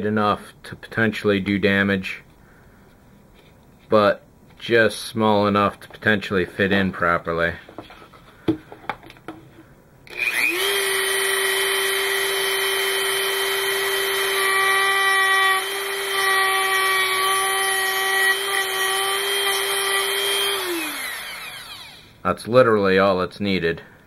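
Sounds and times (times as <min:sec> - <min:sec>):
rotary tool high whine: 0:10.0 - 0:22.2.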